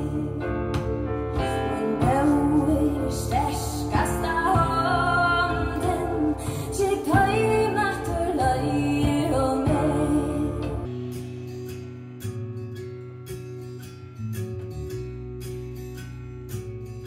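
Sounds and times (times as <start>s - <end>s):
woman singing: 0.0s - 10.9s
instrumental backing music: 0.0s - 17.0s.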